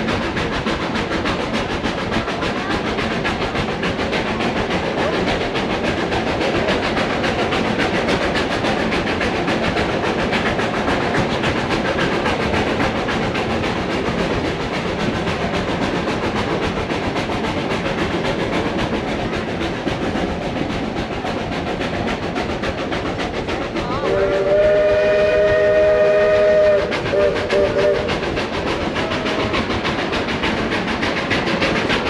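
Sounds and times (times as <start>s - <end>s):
train cars rumbling and rattling: 0.0s - 32.0s
train whistle blasts: 23.9s - 28.1s.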